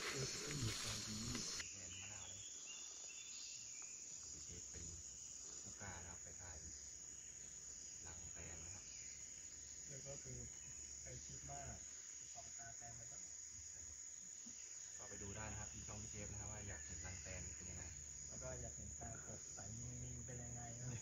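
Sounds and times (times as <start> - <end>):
rustling noise: 0.0 - 1.6
insects trilling: 0.0 - 21.0.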